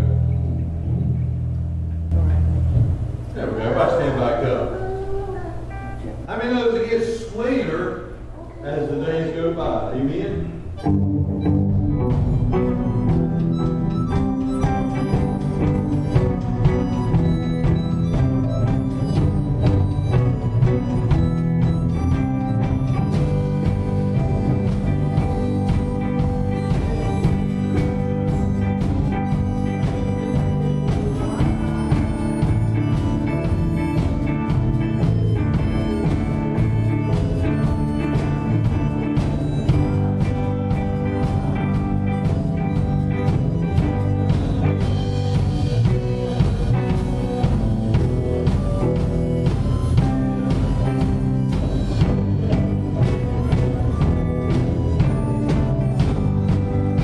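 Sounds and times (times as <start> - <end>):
electric guitar: 0.0 - 6.8, 7.9 - 57.0
live band playing: 0.0 - 57.0
drums with steady beat: 9.6 - 57.0.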